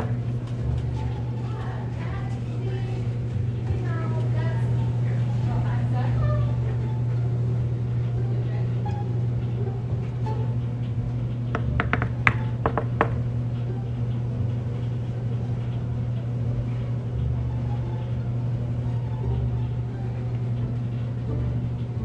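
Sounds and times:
steady low hum: 0.0s - 22.0s
knuckles knocking on door: 11.6s - 13.4s.

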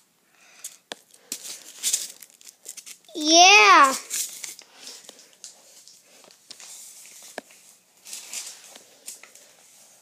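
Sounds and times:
soft rustles: 3.8s - 10.0s.

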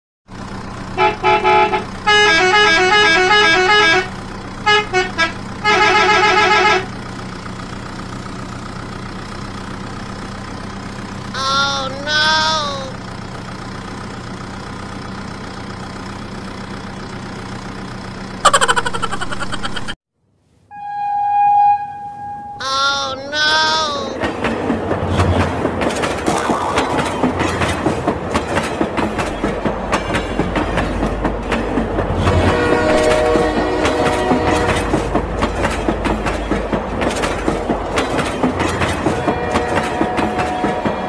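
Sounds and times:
truck engine drone: 0.2s - 41.0s
truck horn blasts: 0.8s - 7.1s, 20.7s - 24.2s, 32.2s - 36.6s, 38.6s - 41.0s.

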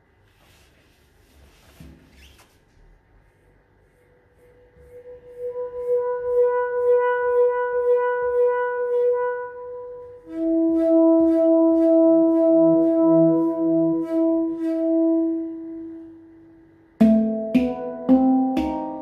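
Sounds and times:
low ringing handpan note: 4.8s - 19.0s
handpan fingertip taps: 17.0s - 19.0s.

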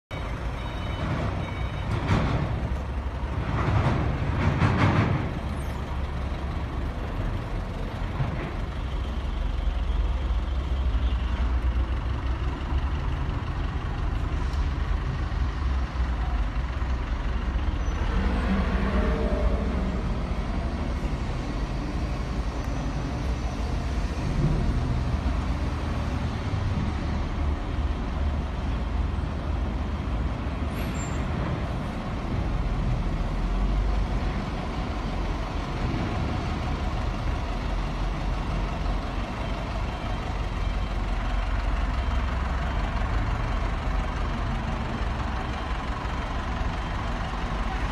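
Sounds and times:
road roller engine running: 0.1s - 47.9s.

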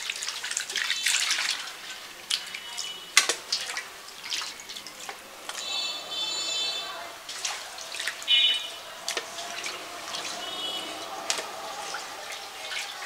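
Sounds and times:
high-pitched calls: 3.9s - 13.0s.

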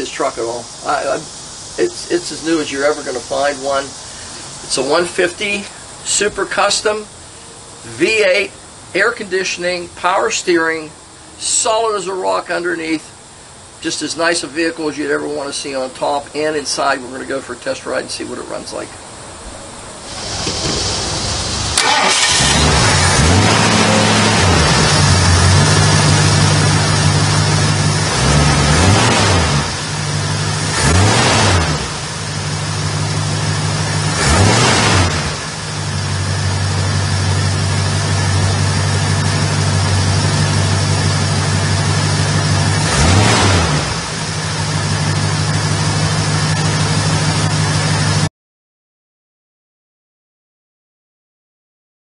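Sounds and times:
truck engine idling and revving: 0.0s - 9.6s, 20.0s - 48.3s.

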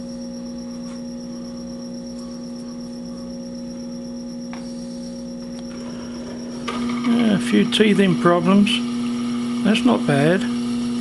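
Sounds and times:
lathe motor humming: 0.2s - 11.0s
drill cutting into workpiece: 6.2s - 11.0s.

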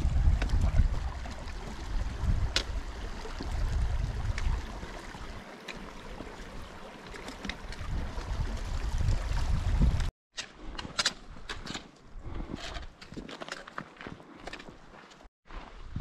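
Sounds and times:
wind buffeting microphone: 0.0s - 5.3s, 7.6s - 10.1s.

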